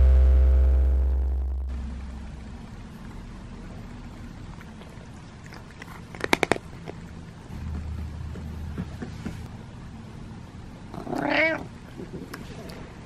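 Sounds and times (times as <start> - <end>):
low steady hum: 0.0 - 13.0
cat licking clicks: 4.7 - 7.0.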